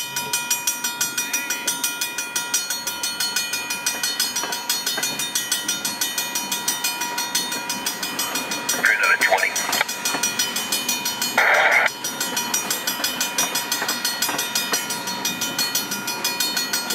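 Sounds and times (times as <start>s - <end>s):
railroad crossing bell ringing: 0.0s - 16.9s
train rolling past: 0.0s - 16.9s.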